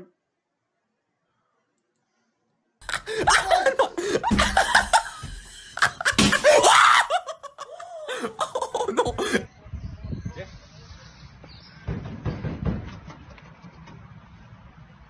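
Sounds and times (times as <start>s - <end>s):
group of people laughing: 2.8s - 9.5s.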